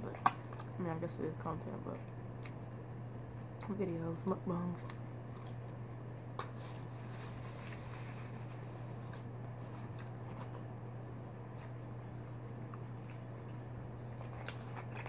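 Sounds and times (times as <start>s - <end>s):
paper napkins rustling: 6.4s - 10.7s.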